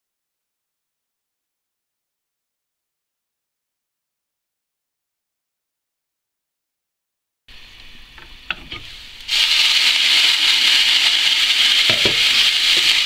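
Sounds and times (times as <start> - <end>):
vegetables sizzling in oil: 7.5 - 13.0
wooden spatula knocking pan: 11.8 - 13.0.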